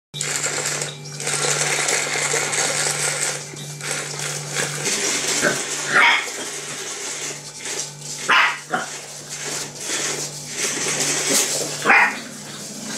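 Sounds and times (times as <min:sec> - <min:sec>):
small electric motor whirring: 0:00.2 - 0:12.9
puppy yelping: 0:05.4 - 0:06.4, 0:08.3 - 0:08.9, 0:11.8 - 0:12.3.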